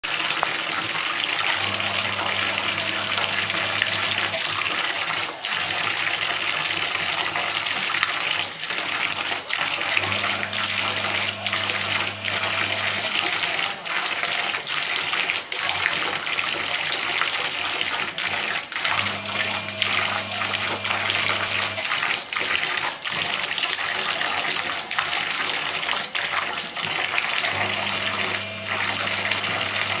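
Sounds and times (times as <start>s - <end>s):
tap water pouring into a basin: 0.0s - 30.0s
dog paws splashing water: 6.4s - 30.0s.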